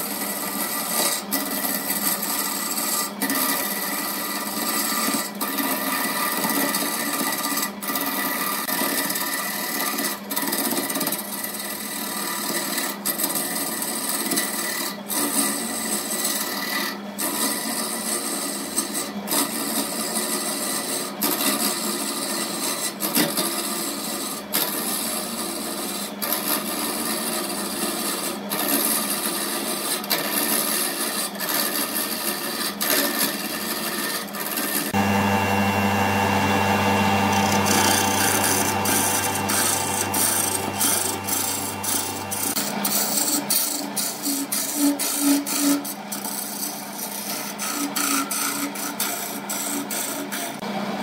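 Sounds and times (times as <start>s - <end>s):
gouge cutting spinning wood: 0.1s - 18.7s, 23.6s - 50.4s
deep steady hum: 35.0s - 42.6s.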